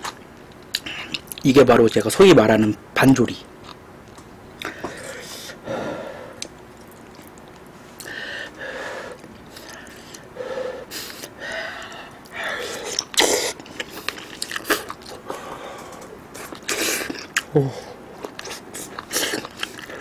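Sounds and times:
wet chewing and slurping: 0:11.0 - 0:17.5, 0:18.1 - 0:20.0.

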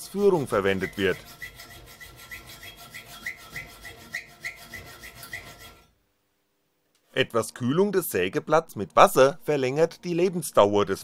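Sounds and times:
hacksaw cutting steel: 0:00.0 - 0:05.9.

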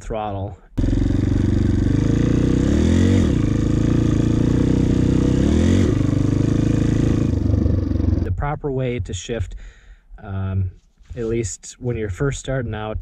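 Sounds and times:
dirt bike engine revving: 0:00.8 - 0:08.3.

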